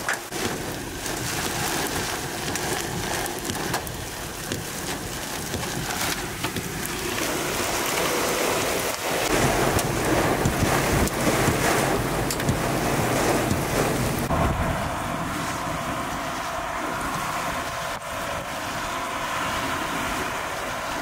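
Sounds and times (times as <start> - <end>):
raindrops tapping on glass: 0.0 - 8.2, 8.8 - 14.3
heavy rain hissing on a vehicle: 0.0 - 21.0
wind rushing: 5.7 - 21.0.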